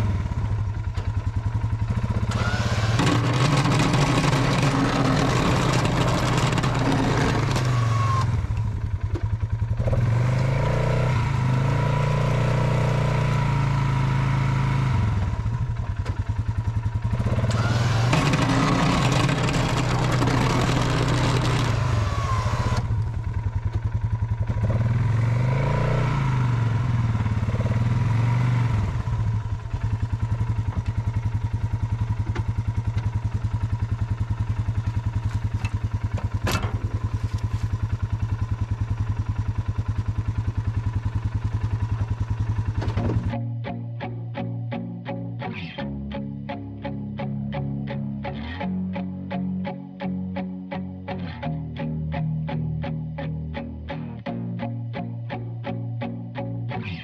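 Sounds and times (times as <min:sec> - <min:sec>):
atv engine revving and idling: 0:00.0 - 0:44.1.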